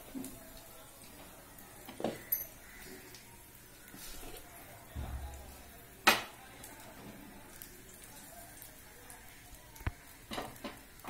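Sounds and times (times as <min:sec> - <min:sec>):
oil frying in a pan: 0:00.0 - 0:11.0
pan knocking: 0:05.0 - 0:05.7.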